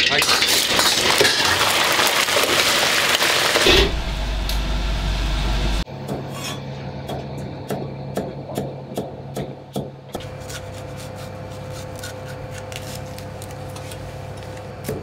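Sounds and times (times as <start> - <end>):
oil sizzling in wok: 0.0 - 5.9.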